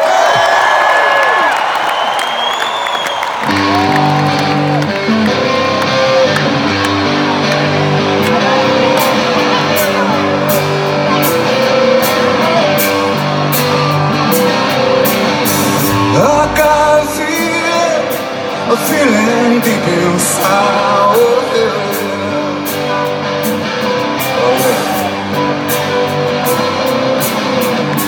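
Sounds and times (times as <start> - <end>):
rock band playing: 3.4 - 28.0
man singing: 15.8 - 23.1, 24.2 - 25.2.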